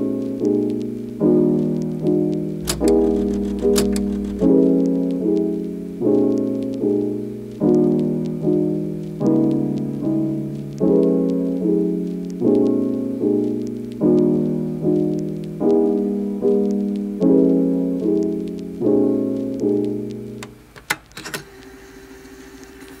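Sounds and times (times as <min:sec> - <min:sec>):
soft piano chords: 0:00.0 - 0:20.7
sharp clicks: 0:02.6 - 0:04.6.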